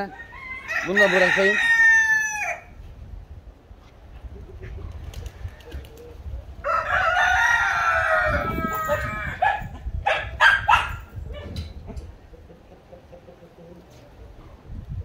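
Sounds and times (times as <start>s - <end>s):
rooster crowing: 0.1s - 2.7s, 6.6s - 9.6s
chickens calling: 4.1s - 14.7s.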